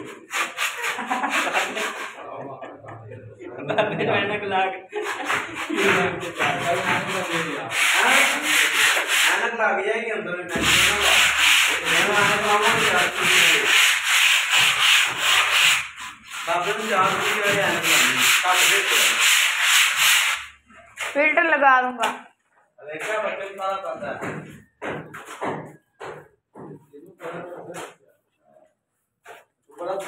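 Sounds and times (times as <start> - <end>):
scrubbing cement wall: 0.0 - 3.0, 5.0 - 9.5, 10.5 - 21.3.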